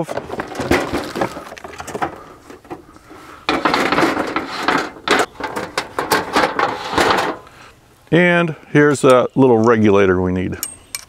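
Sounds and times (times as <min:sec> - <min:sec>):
metal camp stove clattering: 0:00.0 - 0:07.6.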